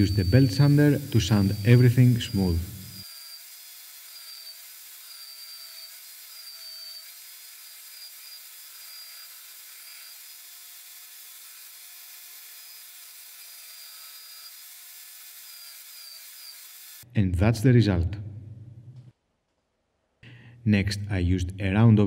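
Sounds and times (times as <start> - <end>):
belt sander sanding wood: 0.0 - 17.0.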